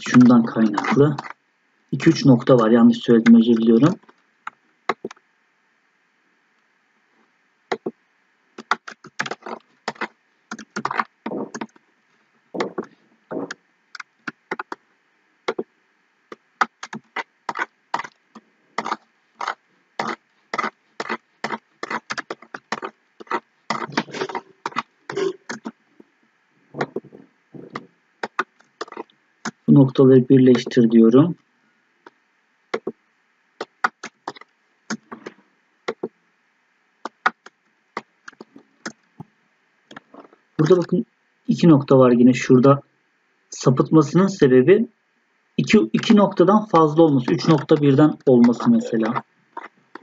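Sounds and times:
mouse and keyboard clicking: 0:00.0 - 0:01.4, 0:04.9 - 0:05.2, 0:08.6 - 0:11.8, 0:12.6 - 0:14.8, 0:16.3 - 0:18.2, 0:18.8 - 0:25.8, 0:27.7 - 0:29.6, 0:33.6 - 0:35.3, 0:37.0 - 0:39.0.

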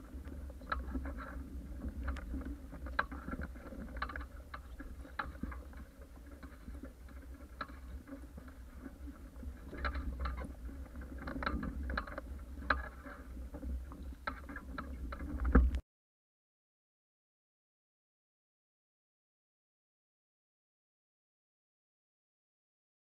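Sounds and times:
water splashing against hulls: 0:00.0 - 0:15.8.

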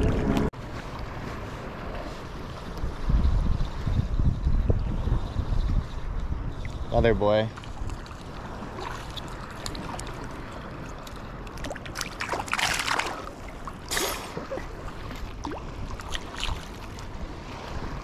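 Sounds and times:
water lapping and sloshing: 0:00.0 - 0:18.0
water splashing: 0:07.5 - 0:18.0.

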